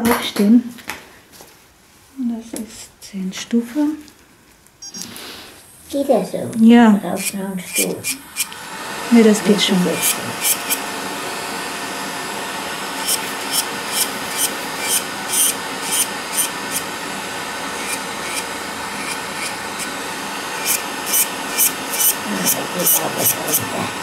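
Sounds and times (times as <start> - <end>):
high scraping bursts: 4.9 - 24.0
nail drill whirring: 4.9 - 24.0.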